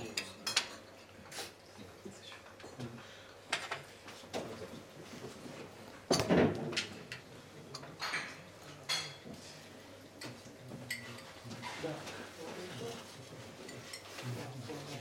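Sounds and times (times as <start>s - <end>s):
crockery and cutlery clinking: 0.0s - 1.4s, 6.1s - 9.5s, 10.2s - 12.1s, 12.7s - 15.0s.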